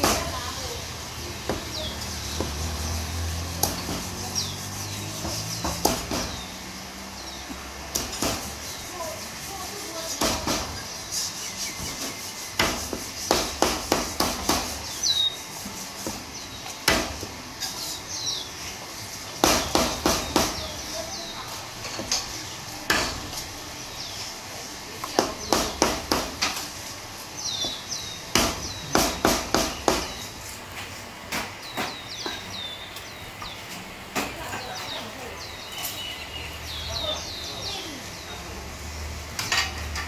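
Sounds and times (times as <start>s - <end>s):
small birds chirping: 0.0s - 30.6s, 31.4s - 39.7s
cleaver chopping on wooden board: 1.5s - 2.8s, 3.6s - 6.5s, 7.9s - 8.6s, 10.2s - 10.8s, 11.8s - 14.9s, 16.0s - 17.3s, 19.4s - 20.6s, 25.1s - 26.6s, 27.6s - 30.3s.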